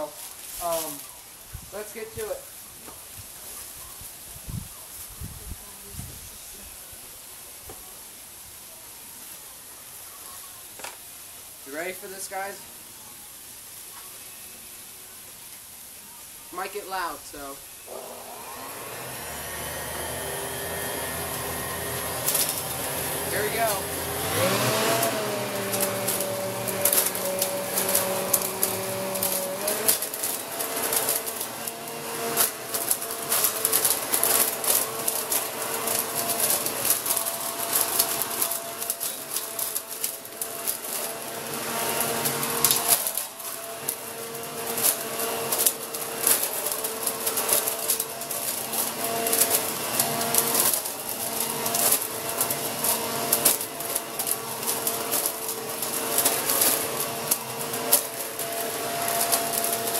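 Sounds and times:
leaves crackling and clattering: 0:00.0 - 0:59.9
leaf vacuum motor whine: 0:16.0 - 0:59.9.

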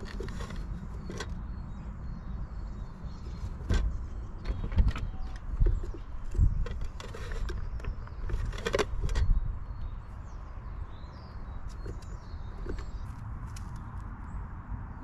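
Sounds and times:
rustling and clattering: 0:00.0 - 0:01.4, 0:03.1 - 0:09.4.

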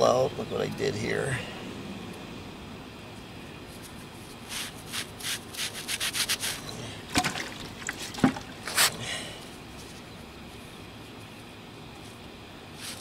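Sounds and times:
sponge rubbing on concrete: 0:03.8 - 0:06.6.

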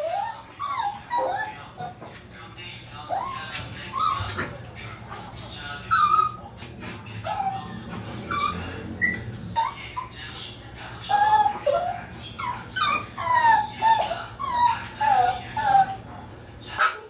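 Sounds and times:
dogs whining and yipping: 0:00.0 - 0:02.1, 0:03.1 - 0:04.6, 0:05.9 - 0:06.6, 0:07.2 - 0:10.2, 0:11.0 - 0:16.0.

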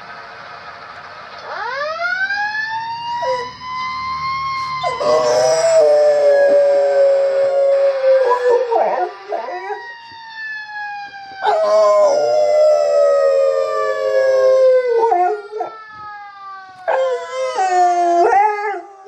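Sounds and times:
fire engine siren: 0:00.0 - 0:19.0
dog howling: 0:04.8 - 0:09.8, 0:11.4 - 0:15.8, 0:16.9 - 0:19.0.

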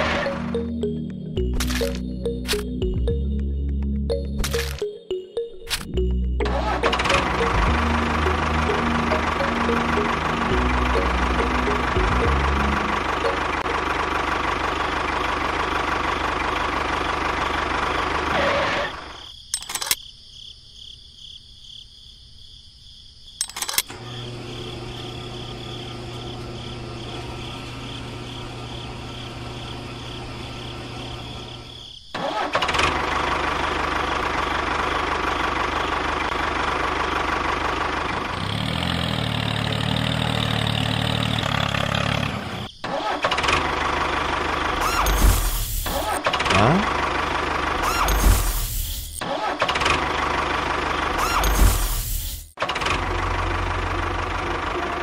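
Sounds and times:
tractor engine running: 0:00.0 - 0:20.0, 0:23.4 - 0:55.0
clicks: 0:03.7 - 0:05.0.

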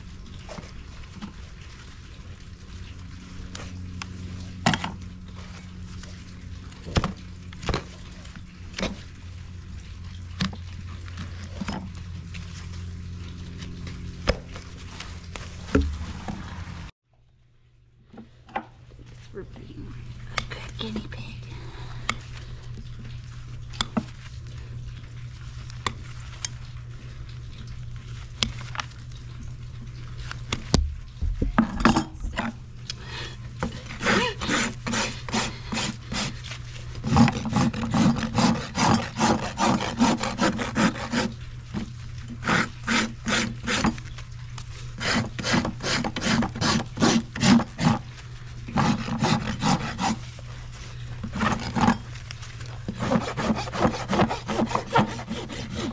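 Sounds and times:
rasp scraping a hoof: 0:33.6 - 0:44.0, 0:45.0 - 0:48.1, 0:48.7 - 0:50.3, 0:51.2 - 0:52.1, 0:52.8 - 0:55.9.

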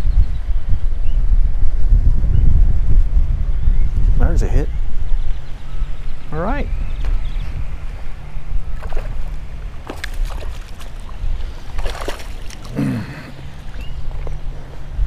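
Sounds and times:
wind rumble on microphone: 0:00.0 - 0:15.0
fish splashing in water: 0:08.8 - 0:12.8.

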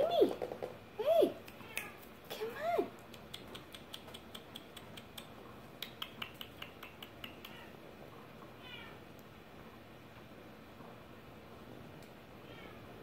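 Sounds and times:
kitten claws clicking on floor: 0:03.0 - 0:07.7.

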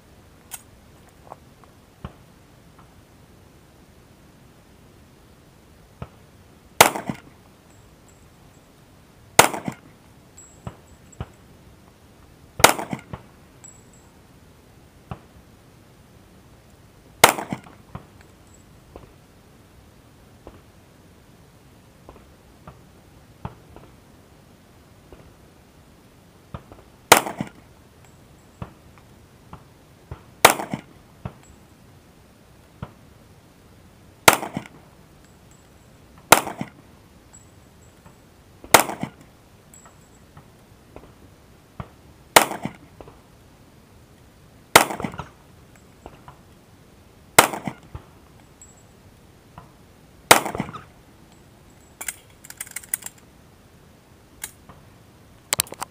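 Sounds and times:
pistol shots: 0:06.8 - 0:07.2, 0:09.4 - 0:09.8, 0:12.6 - 0:13.1, 0:17.2 - 0:17.7, 0:27.1 - 0:27.6, 0:30.4 - 0:30.9, 0:34.2 - 0:34.7, 0:36.3 - 0:36.8, 0:38.7 - 0:39.2, 0:42.4 - 0:42.8, 0:44.7 - 0:45.3, 0:47.4 - 0:47.8, 0:50.3 - 0:50.8.

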